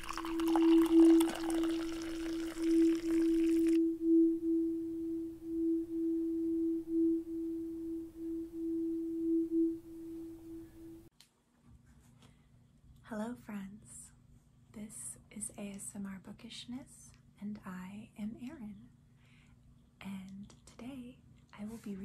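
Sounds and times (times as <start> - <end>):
tea pouring into a cup: 0.0 - 3.8
steady ringing tone: 0.0 - 11.1.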